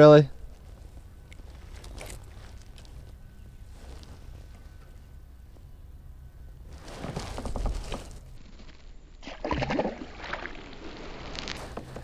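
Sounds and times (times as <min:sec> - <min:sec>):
knocks and rustling: 0:06.7 - 0:08.3
fish splashing into water: 0:09.2 - 0:11.6.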